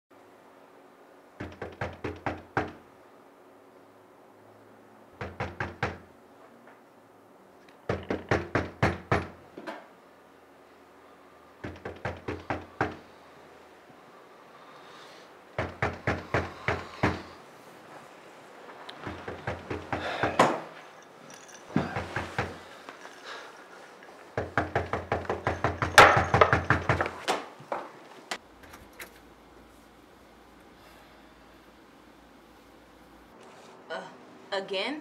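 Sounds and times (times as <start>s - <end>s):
quick sharp knocks on a door: 1.4s - 2.8s, 7.9s - 9.4s, 11.6s - 13.0s.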